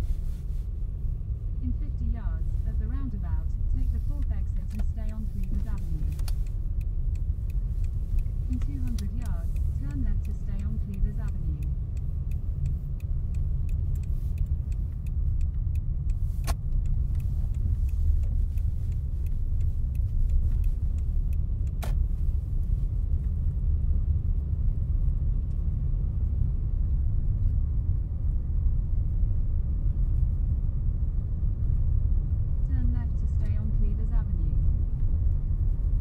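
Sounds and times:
engine and tyres rumbling: 0.0s - 36.0s
light ticking: 2.8s - 23.4s
sharp clicks: 4.2s - 22.1s.

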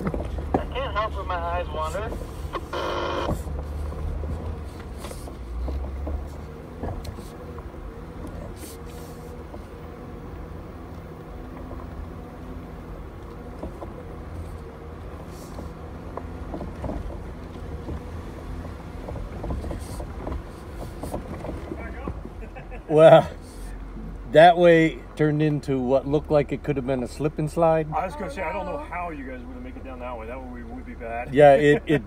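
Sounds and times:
vehicle clicks and knocks: 0.0s - 0.8s, 2.1s - 8.4s, 15.5s - 22.8s
vehicle engine running low: 0.0s - 32.0s.

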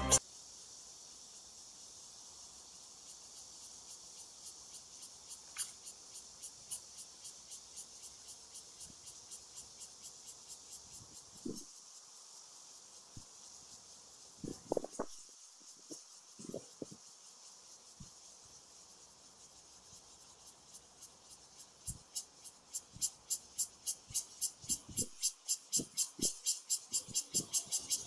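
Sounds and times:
insects chirping: 0.0s - 28.0s.

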